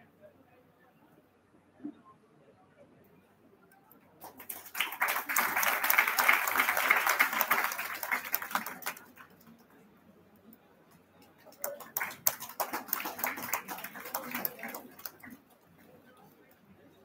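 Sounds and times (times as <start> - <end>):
audience clapping: 4.2 - 9.6, 11.5 - 15.5.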